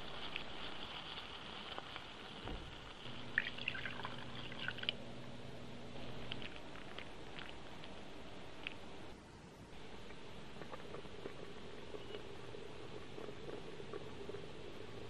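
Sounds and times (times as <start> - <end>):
sizzling in a pot: 0.0 - 5.0
sputtering crackles: 0.0 - 9.2, 9.8 - 15.0
liquid poured into a pot: 3.1 - 5.0.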